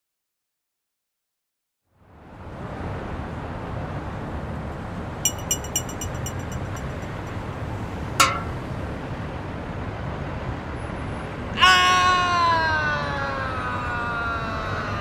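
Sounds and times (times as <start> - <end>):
light clinks on window glass: 5.3 - 7.3, 8.2 - 8.6.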